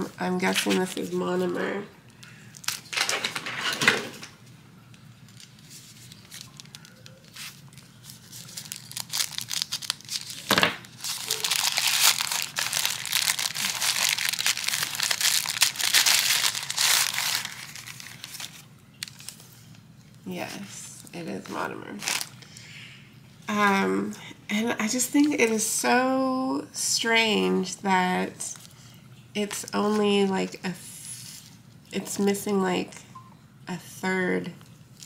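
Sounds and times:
paper crinkling and tearing: 5.3 - 19.6, 21.9 - 22.4.

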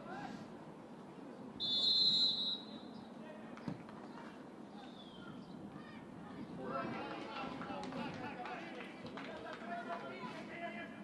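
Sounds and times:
faint outdoor voices: 0.0 - 11.0
falling whistle: 1.6 - 2.7
referee's whistle blast: 1.6 - 2.7.

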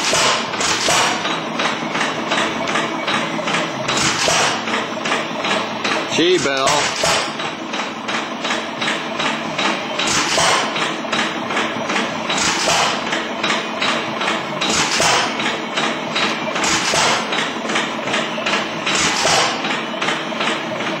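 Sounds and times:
machine rapid knocking: 0.0 - 21.0.

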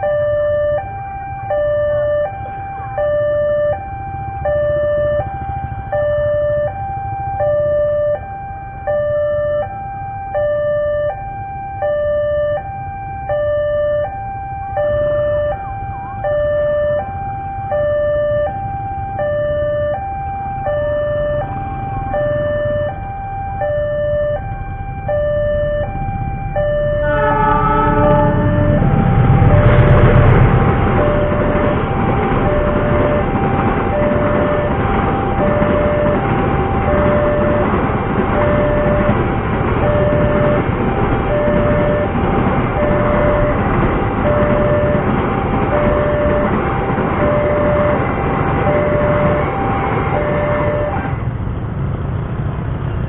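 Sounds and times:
train rumbling: 0.0 - 10.7, 11.8 - 53.0
level crossing alarm two-tone: 0.0 - 51.2
locomotive horn: 26.8 - 37.8, 41.3 - 46.6, 47.2 - 51.4.

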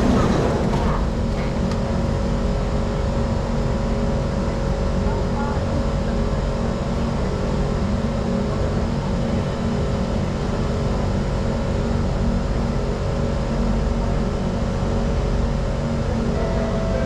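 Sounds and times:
train carriage hum and rumble: 0.0 - 17.0
steady equipment tones: 16.3 - 17.0.

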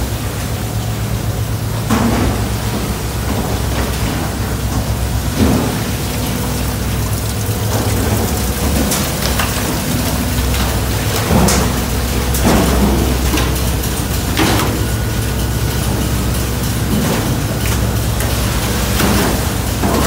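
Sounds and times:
boat engine drone: 0.0 - 20.0
water spraying over steel troughs: 0.0 - 20.0
knocks and clanks: 7.7 - 20.0.

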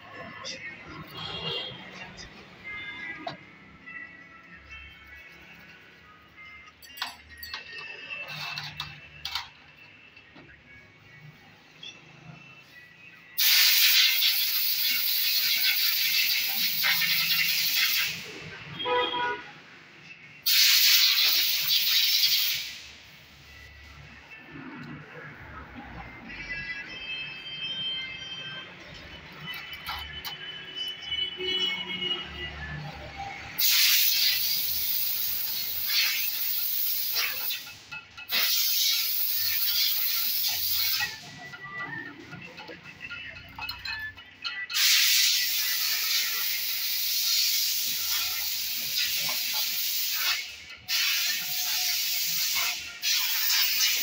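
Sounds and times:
compressed air blow gun hissing: 33.6 - 37.6, 38.3 - 41.1, 44.8 - 54.0.

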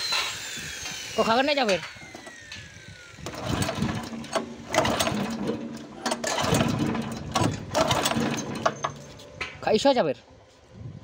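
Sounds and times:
small engine pull-start rattling: 3.2 - 9.2.

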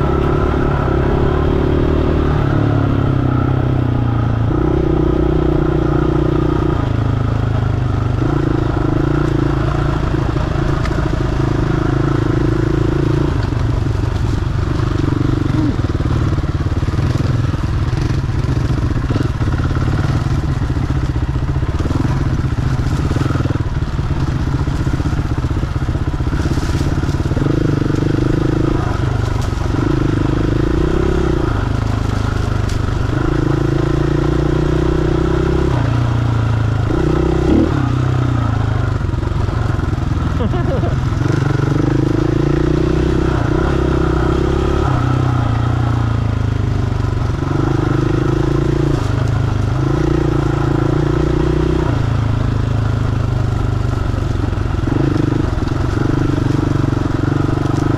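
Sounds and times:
bike rattling and knocking: 13.4 - 33.6
dirt bike engine revving: 14.7 - 46.4.

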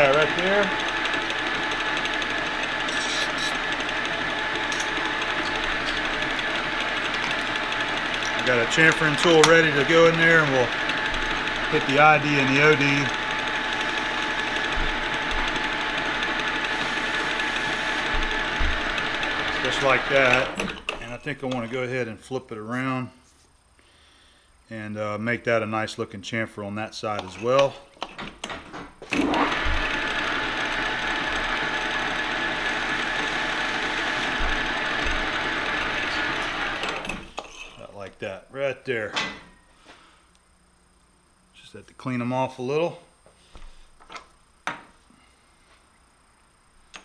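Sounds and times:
cutting tool on metal: 0.0 - 21.6, 29.2 - 37.6
metal lathe whining: 0.0 - 21.8, 27.2 - 38.0.

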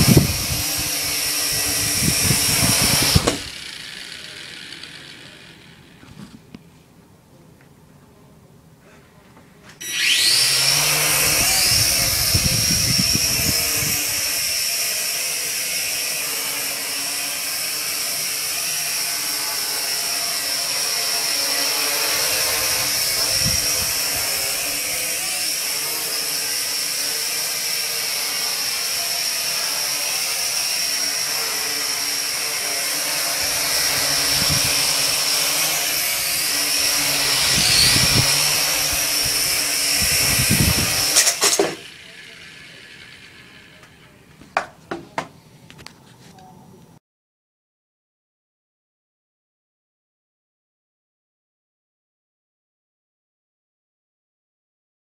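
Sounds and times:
quadcopter propellers whining: 0.0 - 6.5, 9.8 - 44.7.

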